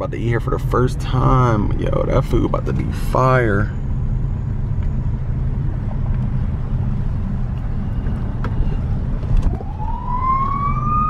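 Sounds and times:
car rolling rumble: 0.0s - 11.0s
siren wail: 9.4s - 11.0s.

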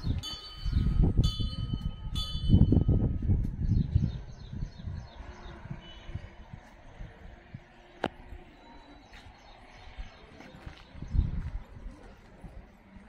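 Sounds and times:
wind buffeting microphone: 0.0s - 13.0s
metal bell ringing: 0.2s - 3.1s.

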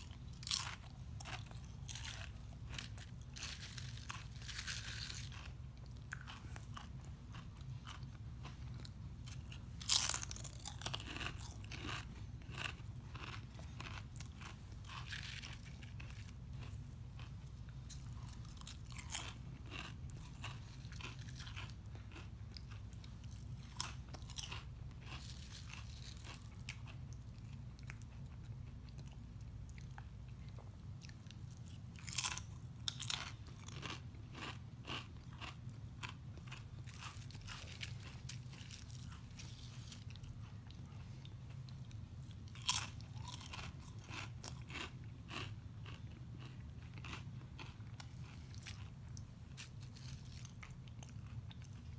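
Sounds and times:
low steady hum: 0.0s - 51.9s
man chewing crunchy chips: 0.0s - 51.9s.

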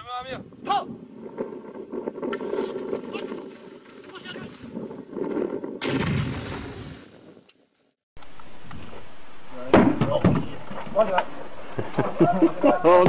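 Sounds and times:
grenade explosion: 5.2s - 7.2s.

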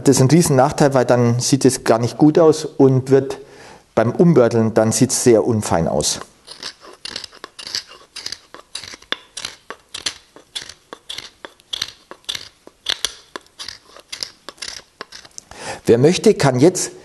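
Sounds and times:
chisel scraping wood: 5.8s - 15.5s.

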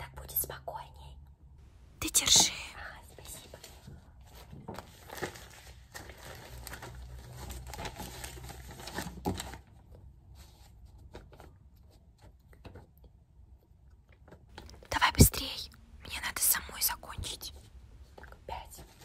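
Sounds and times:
paper rustling: 3.3s - 12.9s.

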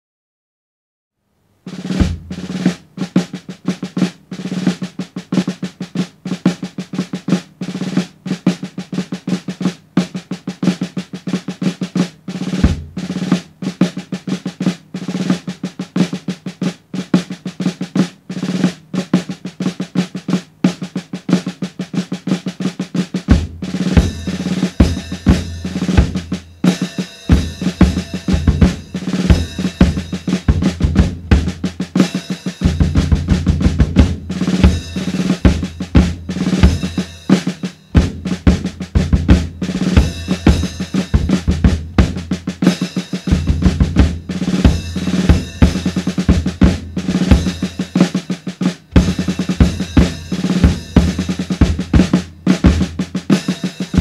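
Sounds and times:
snare drum rolls: 1.7s - 54.0s
ringing cymbals: 26.4s - 30.4s, 32.0s - 32.8s
bass drum kicks: 27.4s - 31.8s, 32.6s - 36.9s, 38.0s - 42.5s, 43.3s - 47.6s.

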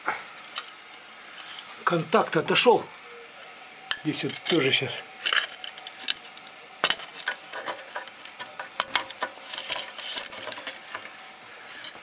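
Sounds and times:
clicks and knocks against metal: 3.9s - 12.0s.

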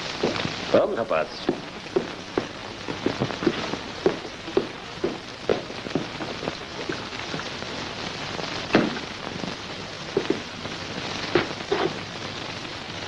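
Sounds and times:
steady hiss: 0.0s - 13.0s
footsteps: 0.2s - 0.6s, 1.4s - 7.6s, 10.1s - 10.6s, 11.3s - 12.0s
loud thud: 8.7s - 9.0s.

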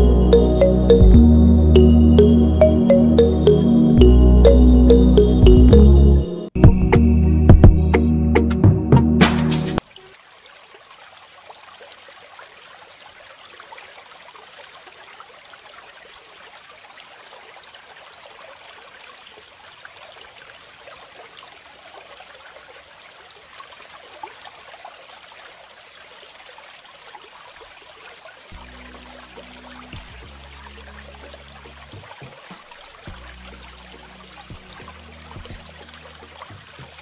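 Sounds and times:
water dripping: 28.5s - 37.0s.

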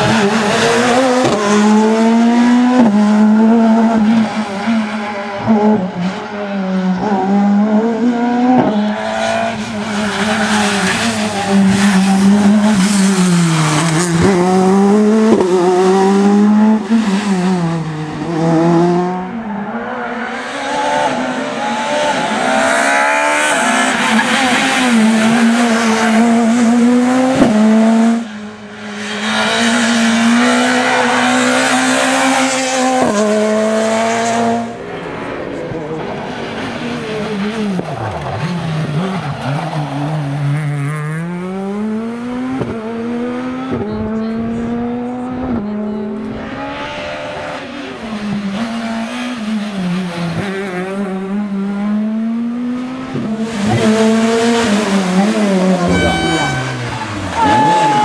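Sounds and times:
rally car engines revving: 0.0s - 58.0s
tyre squeal: 55.8s - 58.0s.

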